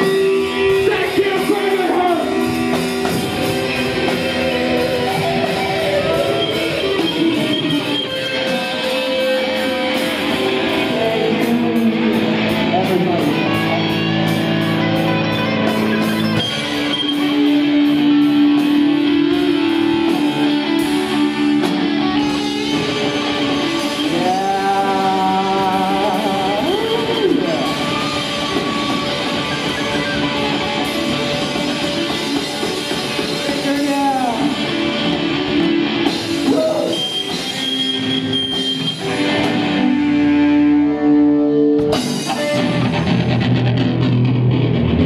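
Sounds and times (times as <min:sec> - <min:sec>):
drum kit: 0:00.0 - 0:45.0
electric guitars: 0:00.0 - 0:45.0
person singing into microphone: 0:23.9 - 0:28.1.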